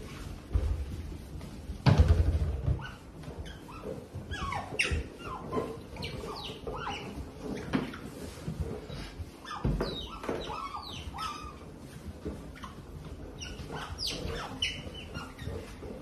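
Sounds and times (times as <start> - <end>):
otters chirping: 3.4 - 7.7, 9.5 - 11.6, 13.3 - 15.8.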